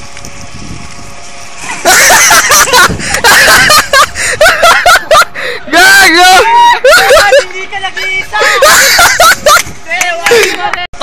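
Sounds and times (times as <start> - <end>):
people laughing and shrieking: 1.8 - 10.5.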